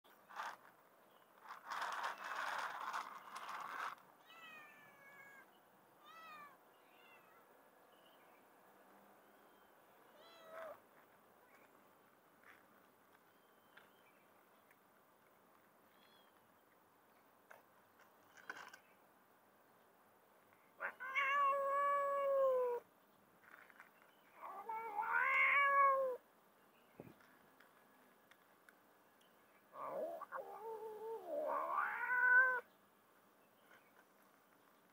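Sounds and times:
cat meowing: 20.8s - 22.8s, 24.4s - 26.2s, 29.8s - 32.6s.

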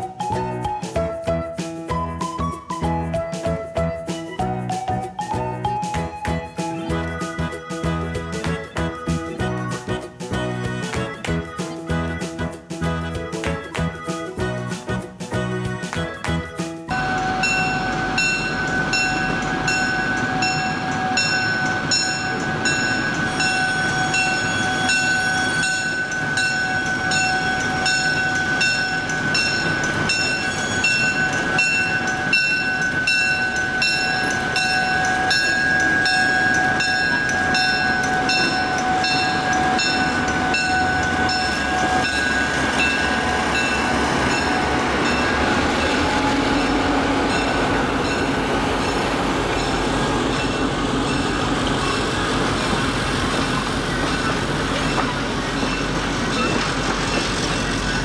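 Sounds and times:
coaches rolling over rails: 0.0s - 58.0s
diesel locomotive passing: 16.9s - 58.0s
locomotive bell ringing: 16.9s - 58.0s.

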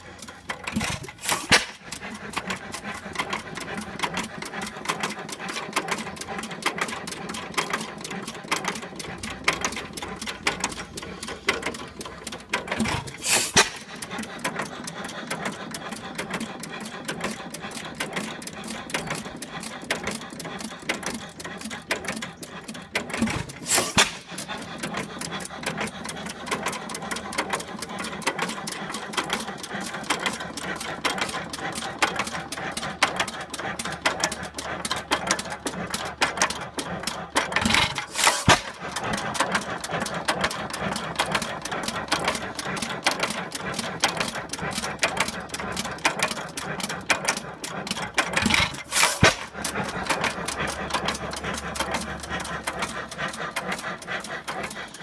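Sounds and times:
gas engine mechanical clatter: 0.0s - 55.0s.

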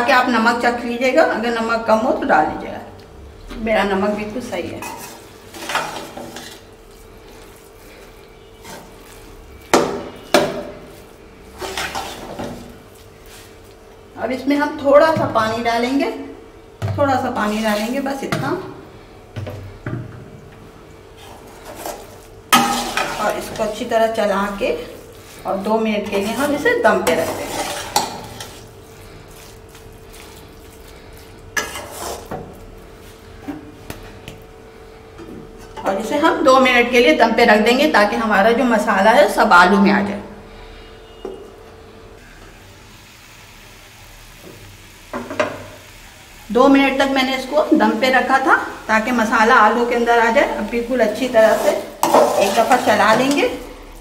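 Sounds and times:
spatula scraping a steel pot: 4.8s - 9.5s, 11.5s - 12.8s, 26.0s - 28.8s, 31.5s - 32.4s, 51.3s - 53.6s.

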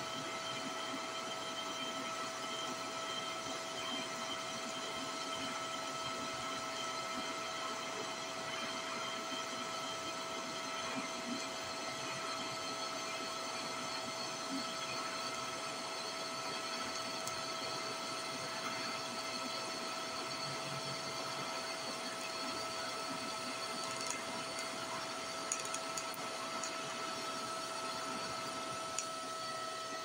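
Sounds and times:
welding arc hissing and whining: 8.4s - 30.0s.

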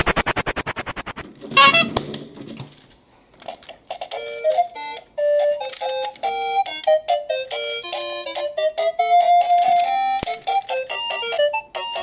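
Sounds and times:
short rising squeak: 1.5s - 2.0s.

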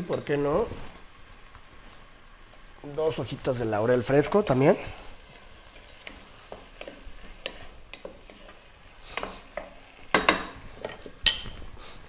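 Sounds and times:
vegetables sizzling in oil: 0.0s - 12.0s
spatula scraping a pot: 5.3s - 11.6s.

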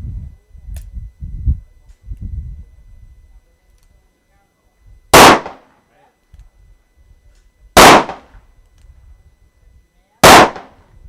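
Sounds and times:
loud revolver shots: 5.1s - 5.6s, 7.8s - 8.3s, 10.2s - 10.8s.

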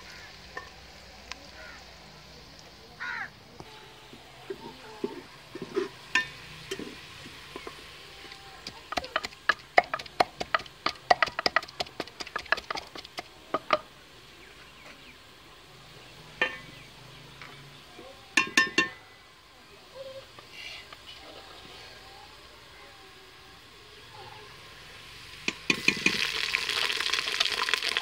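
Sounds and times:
wooden pestle pounding in mortar: 8.9s - 13.3s.

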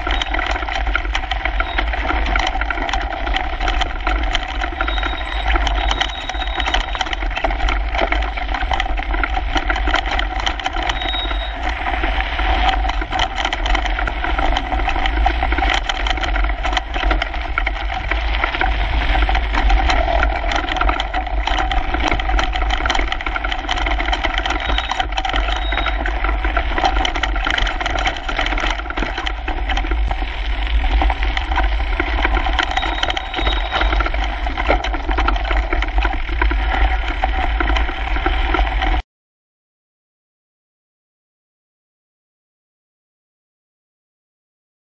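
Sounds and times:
bike shaking over bumps: 0.0s - 39.0s
bike tyres clattering on gravel: 0.0s - 39.0s
steady low rumble: 25.5s - 39.0s.

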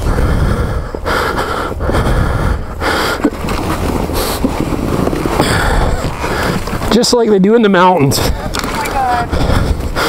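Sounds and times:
person breathing hard and straining: 0.0s - 6.9s, 8.0s - 10.0s
snow and branches rustling: 2.9s - 10.0s.

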